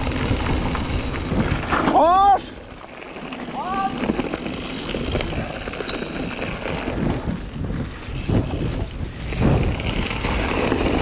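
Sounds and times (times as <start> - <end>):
bike clicks and rattles: 0.0 - 11.0
tyres rumbling on dirt trail: 0.0 - 11.0
wind buffeting microphone: 0.0 - 11.0.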